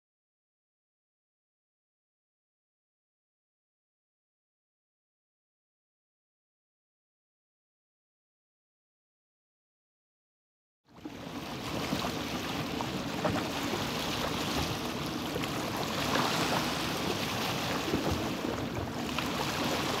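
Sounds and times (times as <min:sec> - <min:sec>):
small waves lapping: 0:10.9 - 0:20.0.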